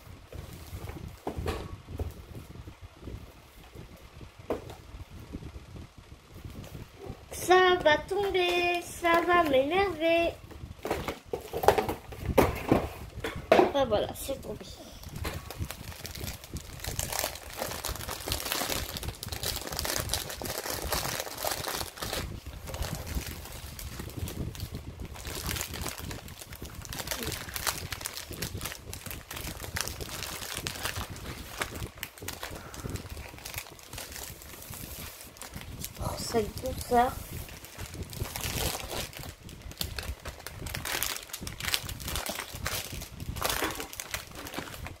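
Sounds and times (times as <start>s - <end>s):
plastic film crinkling: 13.8s - 45.0s.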